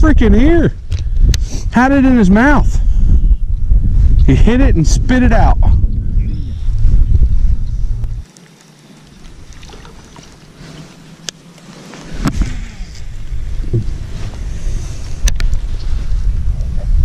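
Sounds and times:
wind buffeting microphone: 0.0 - 8.3, 12.0 - 17.0.

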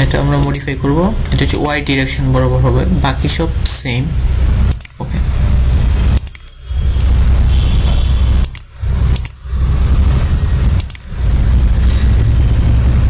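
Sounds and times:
microphone low rumble: 0.0 - 13.0
clicks: 0.3 - 2.0, 4.7 - 5.2, 6.1 - 6.6, 8.4 - 9.4, 10.7 - 11.2.

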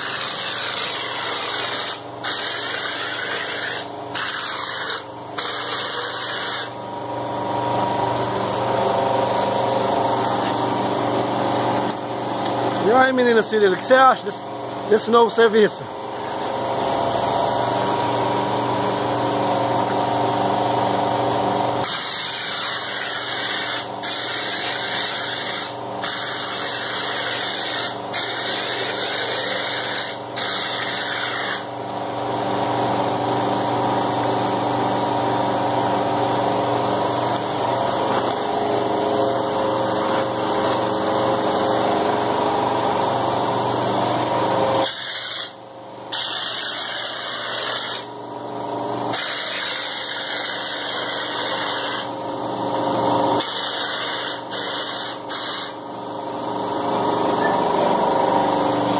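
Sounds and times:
air compressor pumping throb: 0.0 - 6.9, 21.8 - 31.8, 36.6 - 48.2, 49.1 - 58.9
spray gun hissing compressed air: 0.1 - 6.8, 21.8 - 31.6, 44.8 - 48.1, 49.1 - 52.1, 53.4 - 55.8.

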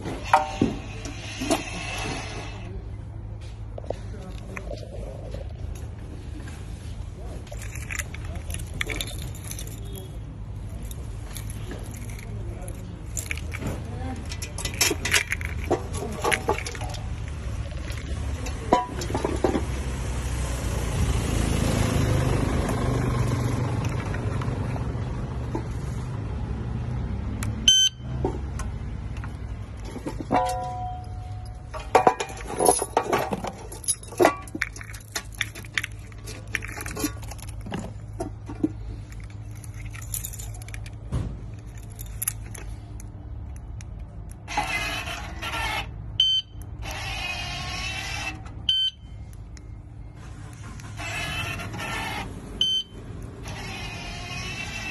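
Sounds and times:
clicks and knocks of metal lock: 10.9 - 19.6, 29.2 - 44.5
short electronic beeps: 27.7 - 28.1, 46.2 - 46.6, 48.7 - 49.2, 52.6 - 53.0.

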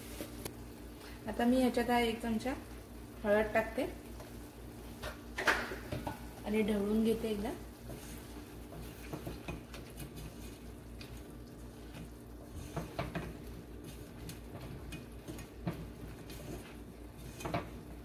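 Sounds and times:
spatula scraping saucepan: 7.1 - 18.0.

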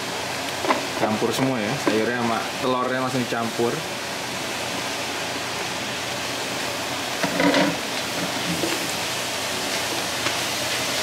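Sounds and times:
vegetables sizzling in a frying pan: 0.0 - 11.0.

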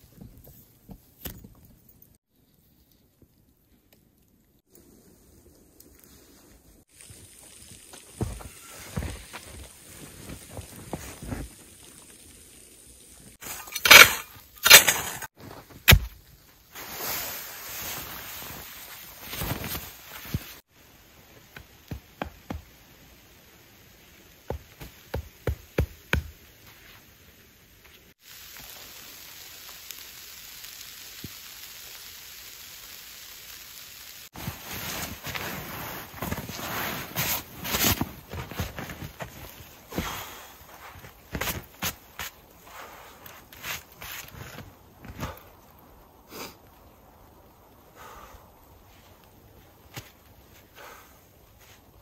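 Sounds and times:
tarp fabric rustling: 8.0 - 11.9, 16.7 - 20.7, 34.3 - 42.4, 43.1 - 45.5.

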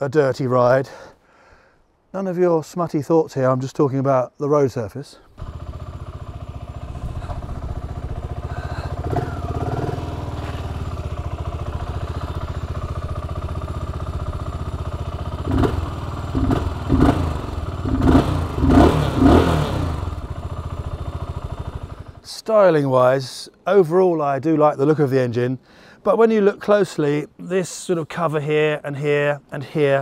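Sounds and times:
engine throttle blips: 5.4 - 22.2
motorcycle engine idling: 5.4 - 22.2.

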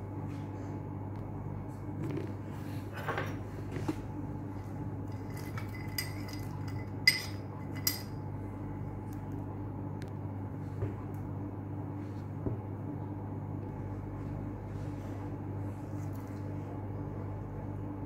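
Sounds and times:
steady low hum: 0.0 - 18.0
glassware clinking: 5.2 - 8.2.

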